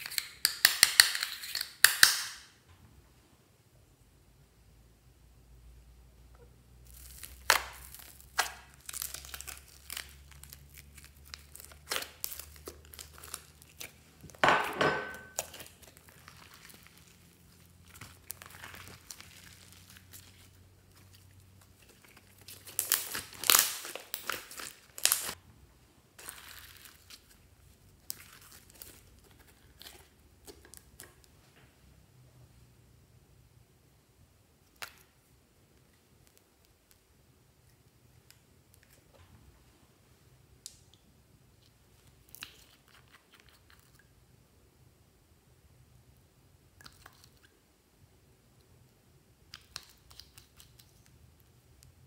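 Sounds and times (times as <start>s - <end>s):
slime crackling and squelching: 6.8s - 14.4s, 15.2s - 25.4s, 26.2s - 31.4s, 41.5s - 44.2s, 49.3s - 52.0s.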